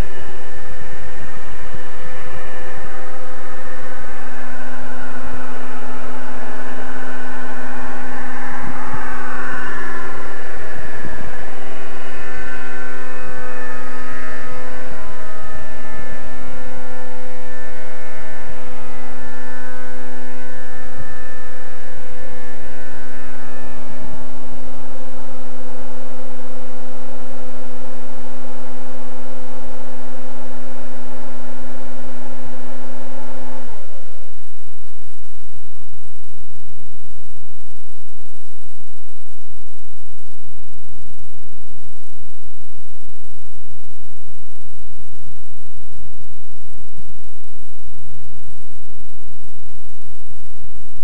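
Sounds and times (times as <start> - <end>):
model helicopter engine running high-pitched: 0.0 - 27.1.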